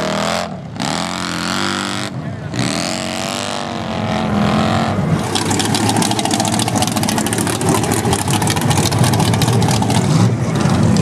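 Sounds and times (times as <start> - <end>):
off-road vehicle engine running: 0.0 - 11.0
rapid crackling: 5.2 - 10.3.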